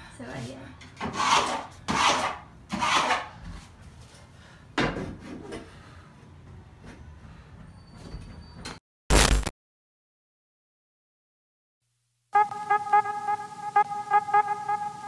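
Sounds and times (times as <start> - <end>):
rasp scraping wood: 1.0 - 3.4.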